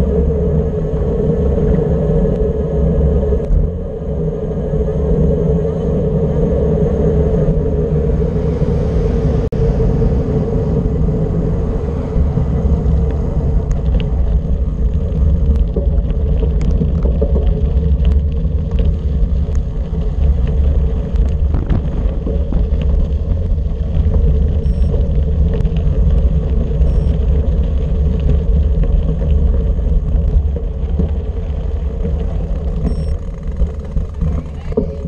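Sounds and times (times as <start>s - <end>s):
wind on microphone: 0.0s - 35.0s
tyres rolling over gravel: 11.3s - 35.0s.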